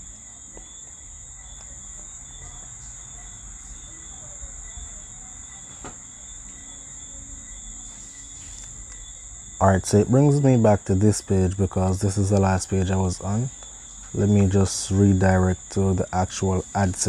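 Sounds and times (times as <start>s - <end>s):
high-pitched background drone: 6.1s - 17.0s.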